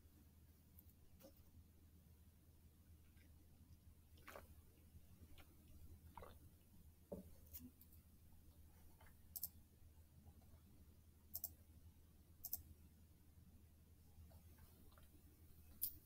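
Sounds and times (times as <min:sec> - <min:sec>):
faint sharp clicks: 0:12.4 - 0:12.7.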